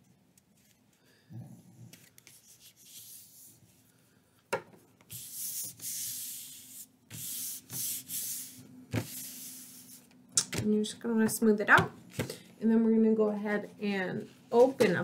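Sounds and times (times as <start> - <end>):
palms swishing on paper: 1.9 - 3.9, 5.0 - 10.1.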